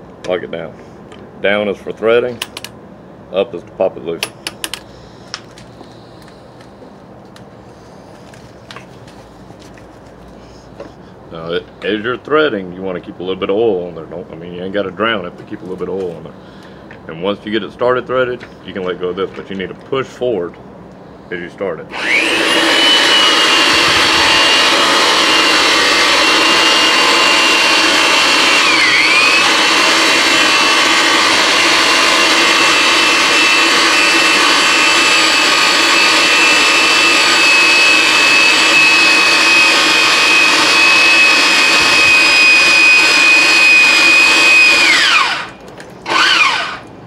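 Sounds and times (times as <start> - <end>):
pipe threader motor running: 21.9 - 47.0.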